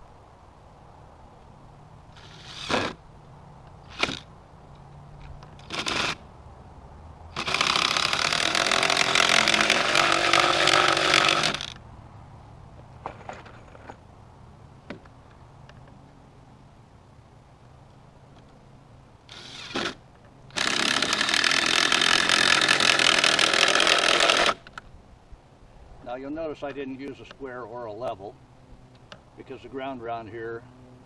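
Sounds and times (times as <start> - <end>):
cordless drill driving screw into wood: 2.2 - 3.0, 3.9 - 4.3, 5.6 - 6.2, 7.4 - 11.8, 19.3 - 24.8.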